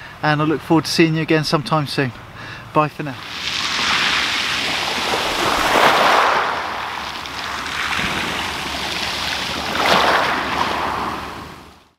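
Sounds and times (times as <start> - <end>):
waves on shingle beach: 3.2 - 11.9.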